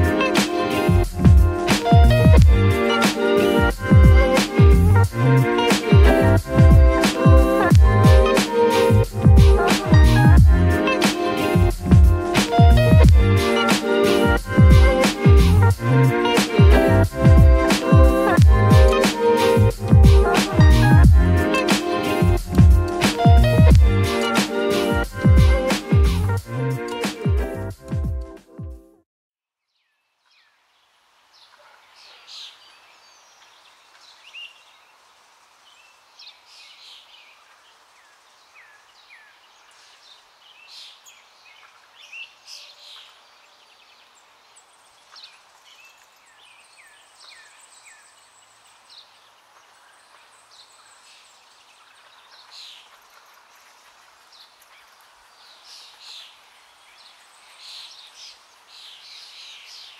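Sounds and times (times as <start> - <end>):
faint steady hiss: 0.0 - 27.9, 29.8 - 59.9
birds chirping: 0.0 - 28.4.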